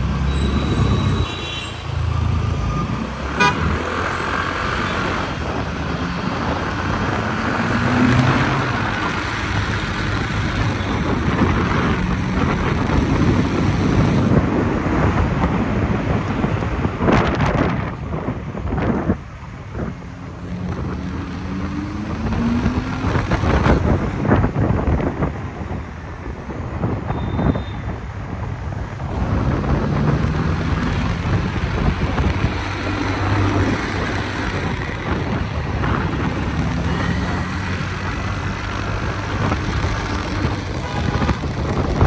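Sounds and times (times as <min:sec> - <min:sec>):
vehicle engines accelerating: 0:00.0 - 0:27.1, 0:28.1 - 0:42.0
street traffic: 0:00.0 - 0:42.0
wind buffeting microphone: 0:04.6 - 0:42.0.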